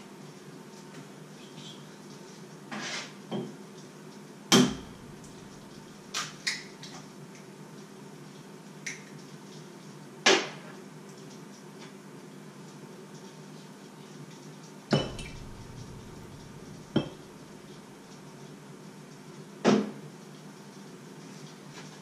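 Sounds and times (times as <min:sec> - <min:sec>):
dishes and pots clinking: 0:14.9 - 0:17.8.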